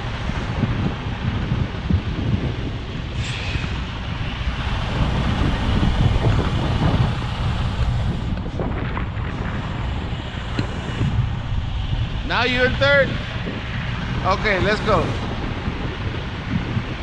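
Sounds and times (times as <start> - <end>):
diesel truck engine idling: 3.0 - 14.6.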